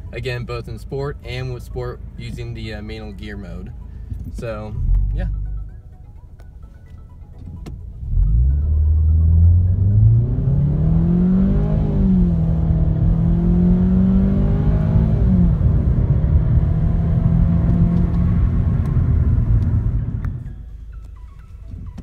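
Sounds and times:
car engine revving: 4.4s - 5.8s, 8.0s - 20.6s.

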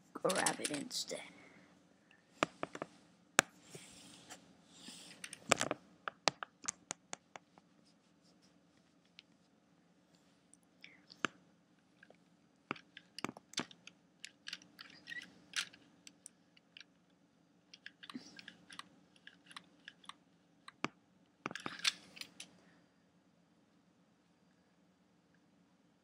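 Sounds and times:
plastic toy pieces clicking: 0.3s - 0.8s, 12.7s - 16.9s, 17.8s - 20.8s, 21.5s - 22.5s.

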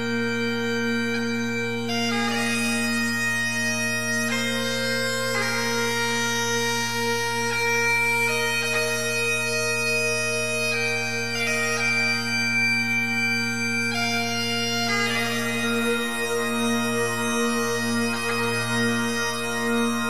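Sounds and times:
held drone: 0.0s - 20.0s
slow melody: 0.0s - 20.0s.

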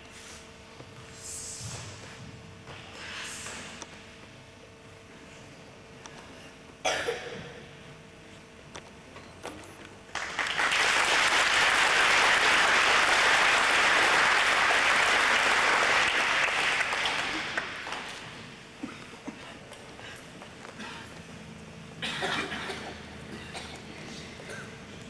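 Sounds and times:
students applauding: 10.1s - 18.4s.

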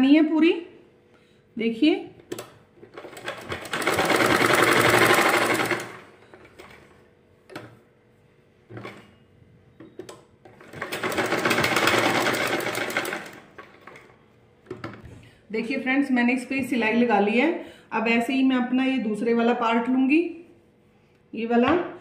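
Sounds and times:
sewing machine stitching: 2.9s - 6.9s, 10.5s - 14.1s.

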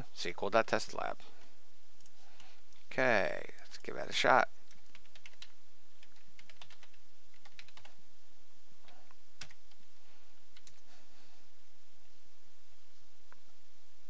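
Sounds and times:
typing on computer keyboard: 4.6s - 8.0s, 8.8s - 9.9s, 10.5s - 10.9s.

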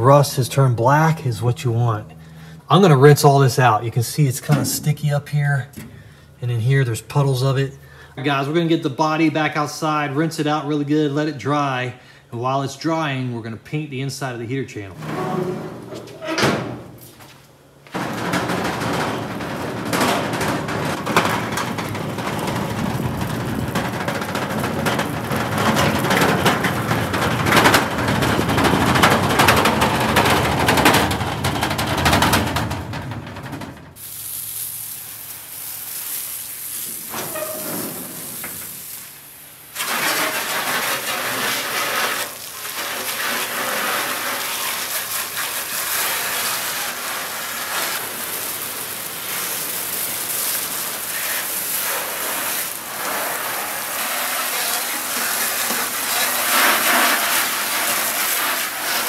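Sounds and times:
casters rattling across concrete: 17.9s - 34.0s
water hissing from a hose: 34.0s - 59.0s.

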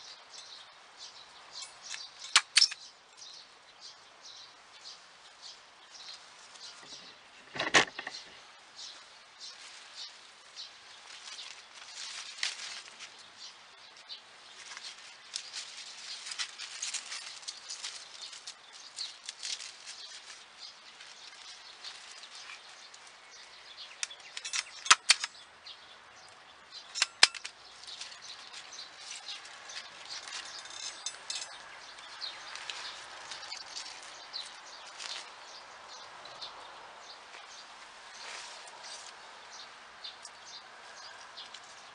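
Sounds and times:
tying tool clacks: 24.0s - 25.4s, 26.9s - 27.6s.

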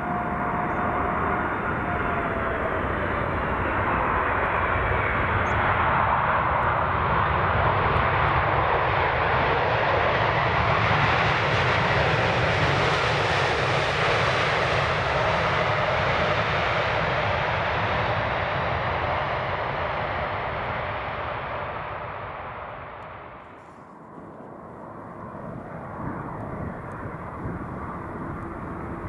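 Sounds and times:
wind buffeting microphone: 0.0s - 8.8s, 23.5s - 29.0s
jet engines roaring: 0.0s - 29.0s.

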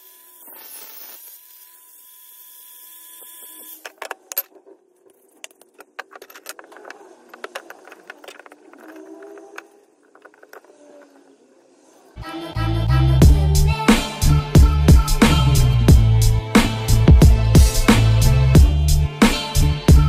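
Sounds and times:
cordless angle grinder whining: 0.0s - 3.8s
metal rods clinking on workbench: 5.4s - 9.1s.

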